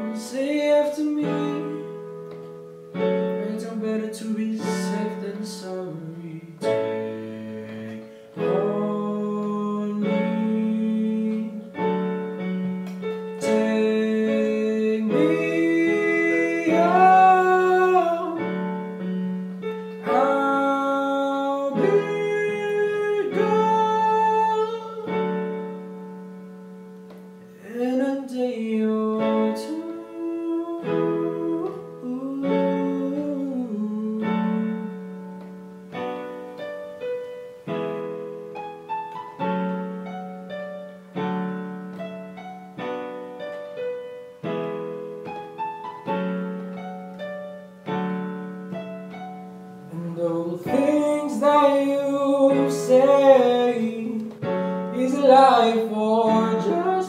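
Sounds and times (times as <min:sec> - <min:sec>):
man singing: 0:00.0 - 0:02.2, 0:03.3 - 0:12.4, 0:13.3 - 0:19.0, 0:20.0 - 0:25.7, 0:27.6 - 0:35.3, 0:49.8 - 0:57.0.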